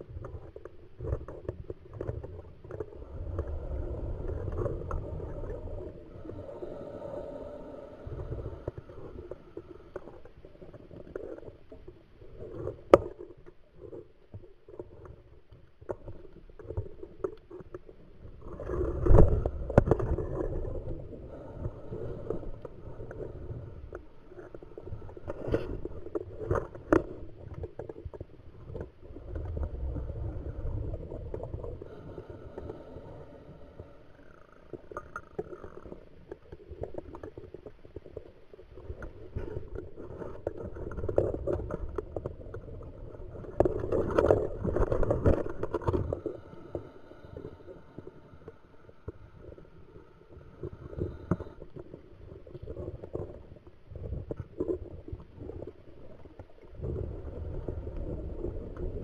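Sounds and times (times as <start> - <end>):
bubbles gurgling underwater: 52.4 - 59.0.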